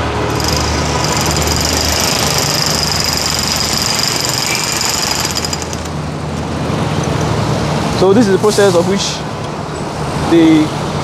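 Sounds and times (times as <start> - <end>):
traffic rumbling: 0.0 - 11.0
jackhammer breaking concrete: 0.3 - 6.0.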